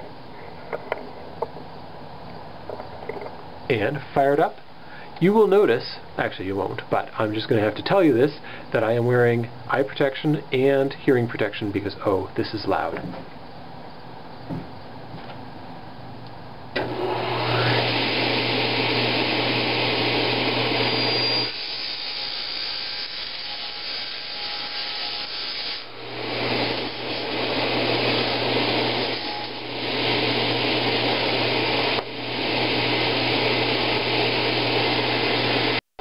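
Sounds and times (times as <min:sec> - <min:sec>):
saw motor humming: 0:25.2 - 0:35.8
saw blade rasping through metal: 0:26.6 - 0:29.6.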